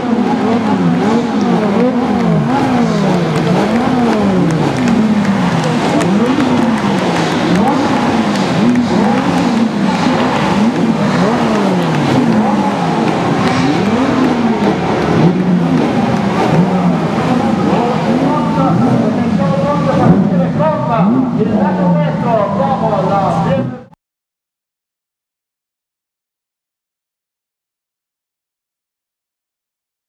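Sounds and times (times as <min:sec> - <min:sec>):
car engines revving: 0:00.0 - 0:24.0.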